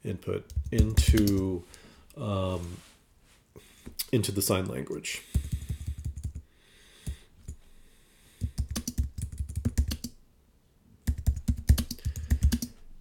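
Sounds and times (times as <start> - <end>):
computer keyboard typing: 0.5 - 1.5, 5.3 - 6.4, 8.4 - 10.1, 11.1 - 12.8.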